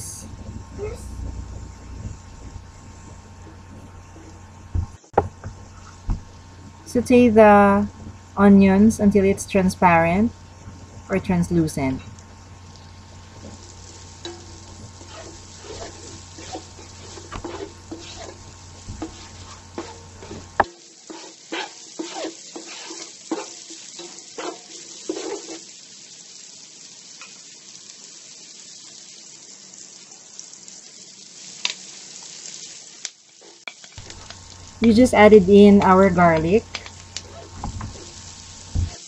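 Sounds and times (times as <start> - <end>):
onions sizzling in frying pan: 0.0 - 39.0
spatula scraping and knocking pan: 13.4 - 25.7, 35.8 - 39.0.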